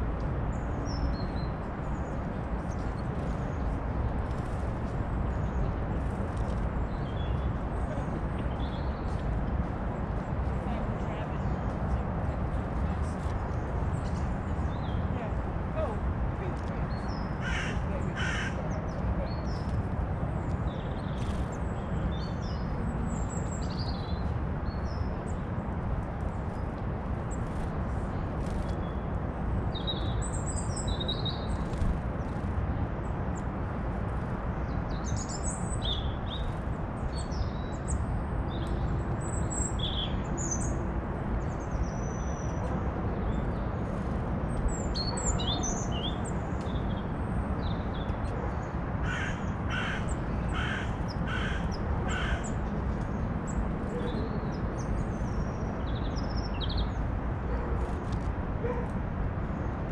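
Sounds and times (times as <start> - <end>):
small birds chirping: 0.5 - 40.8, 41.4 - 57.1
crow cawing: 17.4 - 18.6, 49.0 - 52.4.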